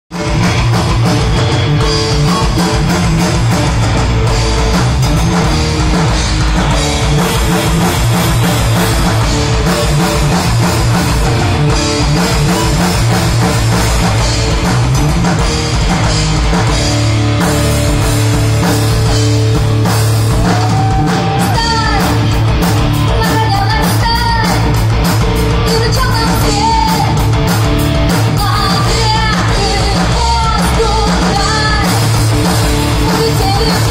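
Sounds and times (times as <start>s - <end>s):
bass guitar: 0.0s - 33.9s
drum kit: 0.1s - 33.9s
electric guitars: 0.1s - 33.9s
woman singing: 21.4s - 22.4s, 23.1s - 24.8s, 25.6s - 27.3s, 28.2s - 33.9s.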